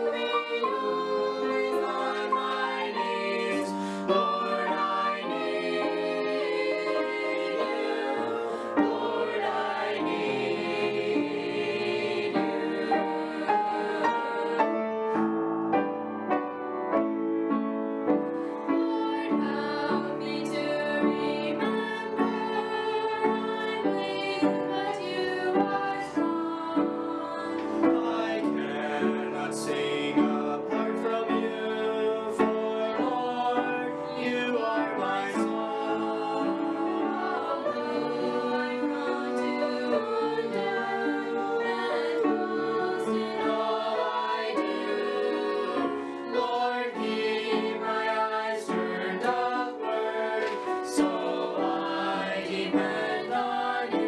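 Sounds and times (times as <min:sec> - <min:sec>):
mixed vocal group singing a hymn: 0:00.0 - 0:54.0.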